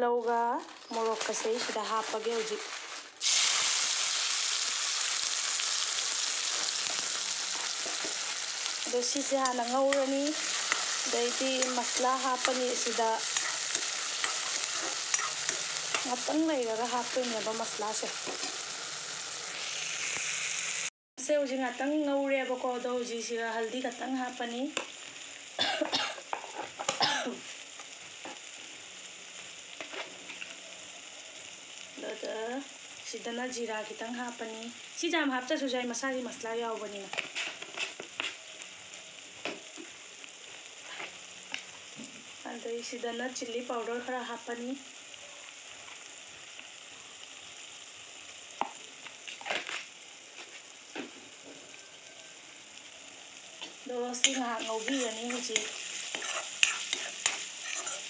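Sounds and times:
vegetables sizzling in hot oil: 0:00.0 - 0:58.0
spoon scraping a pan: 0:09.1 - 0:16.3, 0:18.0 - 0:18.7, 0:26.2 - 0:27.0, 0:54.1 - 0:58.0.

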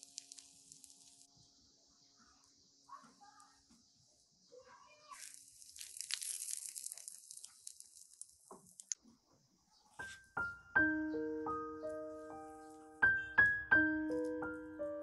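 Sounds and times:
tortilla crackling in a pan: 0:00.0 - 0:01.3, 0:04.8 - 0:09.0
piano music: 0:10.0 - 0:15.0.

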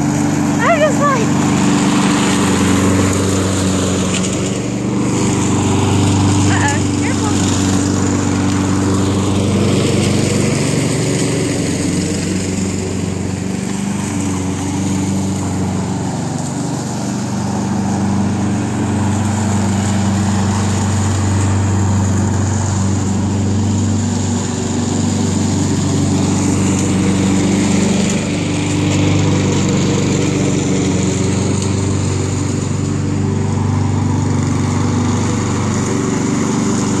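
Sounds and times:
lawn mower engine running: 0:00.0 - 0:37.0.

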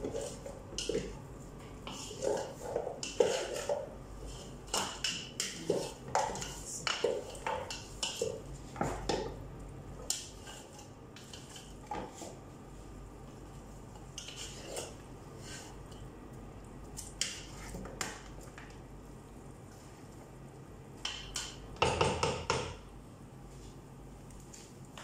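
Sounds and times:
wooden spoon scraping metal pot: 0:00.0 - 0:01.2, 0:01.8 - 0:08.4, 0:14.1 - 0:15.8.

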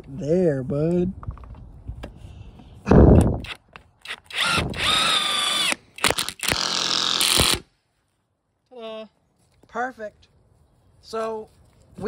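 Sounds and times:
impact wrench whirring: 0:03.1 - 0:07.7.

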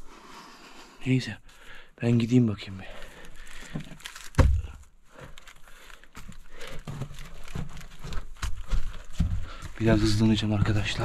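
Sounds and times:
dull thump: 0:04.3 - 0:04.8.

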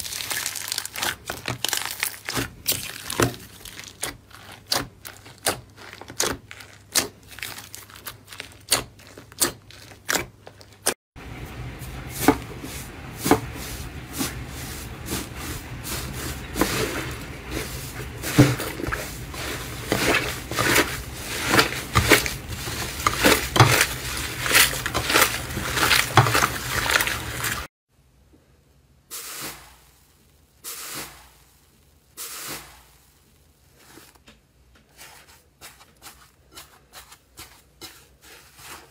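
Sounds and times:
slime crust crunching: 0:00.0 - 0:10.9, 0:15.0 - 0:27.7
slime squishing and crackling: 0:00.0 - 0:11.0, 0:14.2 - 0:27.7.

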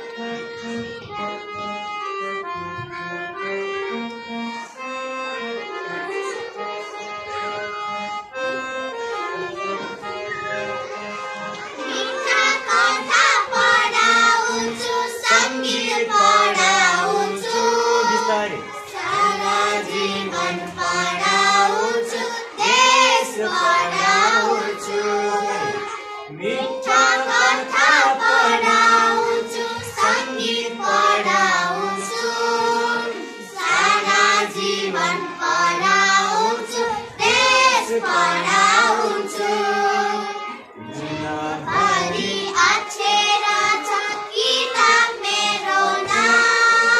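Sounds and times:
girls singing together: 0:11.5 - 0:46.9.

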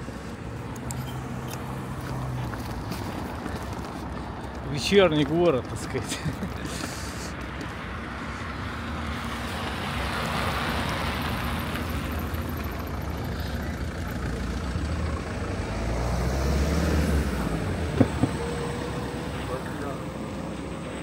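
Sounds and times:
low engine rumble: 0:00.0 - 0:16.3
vehicles driving past: 0:00.0 - 0:21.0.

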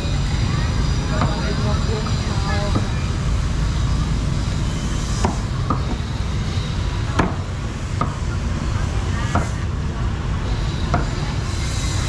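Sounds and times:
sharp knocks: 0:07.2 - 0:07.4.

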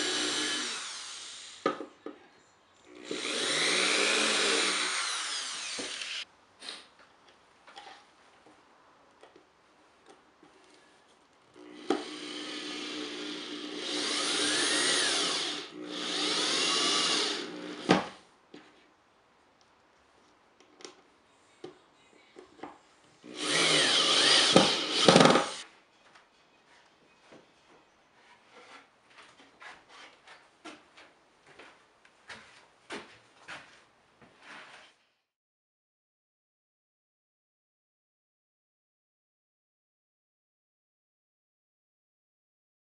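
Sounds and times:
electric drill driving screws: 0:00.0 - 0:01.7, 0:02.9 - 0:06.2, 0:11.6 - 0:18.2, 0:23.2 - 0:25.6.

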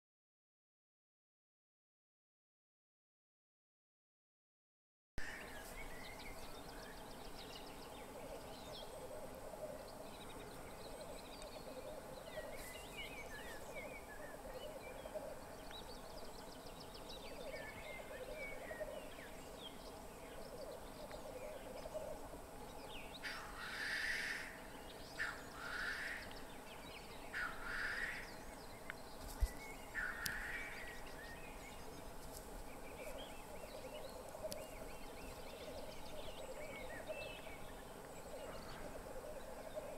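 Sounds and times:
grouse hissing calls: 0:23.2 - 0:26.3, 0:27.3 - 0:28.3, 0:29.9 - 0:30.9.

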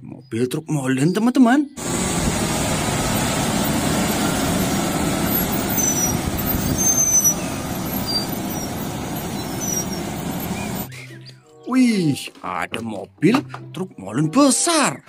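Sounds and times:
truck diesel engine running: 0:01.8 - 0:10.9.

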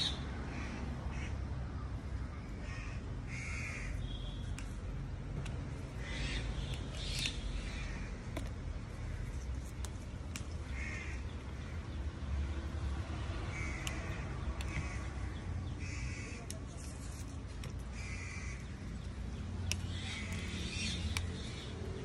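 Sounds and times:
harsh bird calls: 0:05.9 - 0:08.4, 0:10.3 - 0:12.2, 0:17.8 - 0:22.0.

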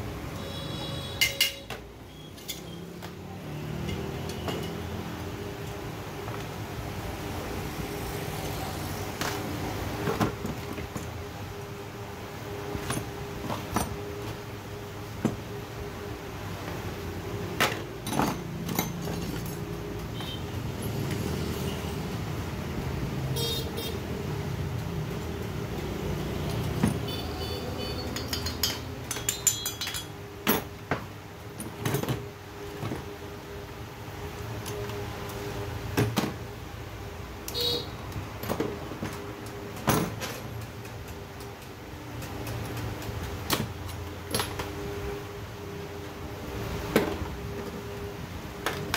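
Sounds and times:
metal tools clicking and clinking: 0:01.2 - 0:03.1, 0:03.8 - 0:05.0, 0:17.6 - 0:20.2, 0:25.1 - 0:30.8, 0:38.4 - 0:44.7.

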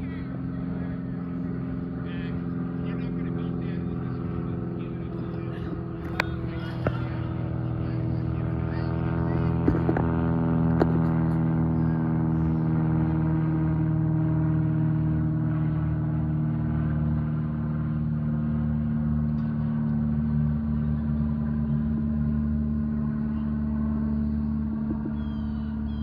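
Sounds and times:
propeller plane droning overhead: 0:00.0 - 0:26.0.

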